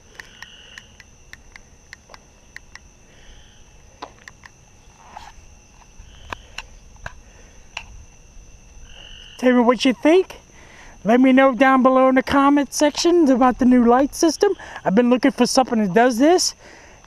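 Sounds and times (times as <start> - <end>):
crickets trilling: 0.0 - 17.0
sharp clicks: 0.1 - 2.9, 4.0 - 4.6.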